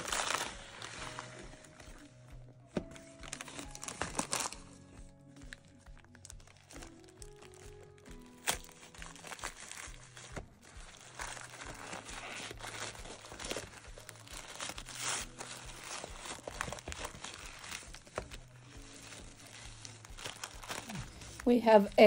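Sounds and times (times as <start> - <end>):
wrapping paper crinkling: 0.0 - 22.0.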